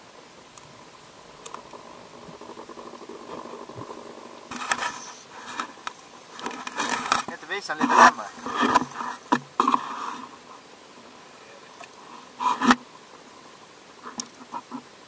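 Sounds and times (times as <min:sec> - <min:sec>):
faint hum: 0:00.0 - 0:15.0
faint underwater hiss: 0:00.0 - 0:15.0
crackling and knocking: 0:01.4 - 0:09.8.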